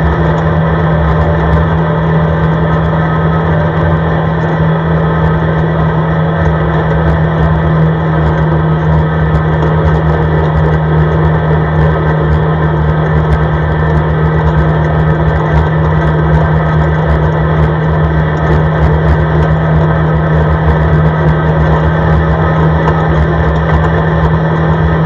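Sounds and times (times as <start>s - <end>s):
atv engine droning: 0.0s - 25.0s
steady low hum: 0.0s - 25.0s.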